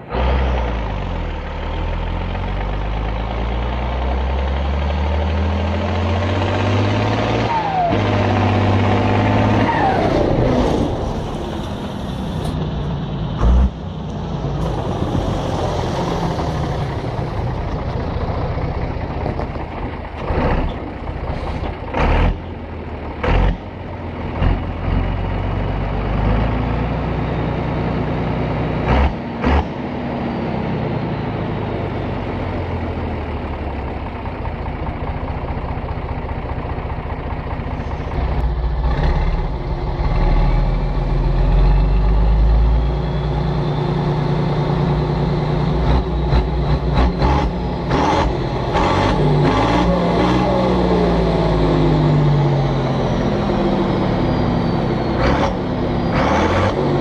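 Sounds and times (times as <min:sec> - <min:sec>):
tractor diesel engine pulling hard: 0:00.0 - 0:57.0.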